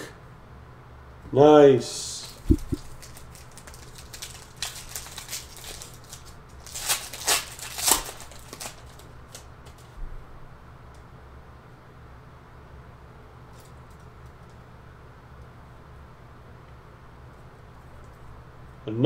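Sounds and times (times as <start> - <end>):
foil wrapper tearing and crinkling: 2.8 - 9.9.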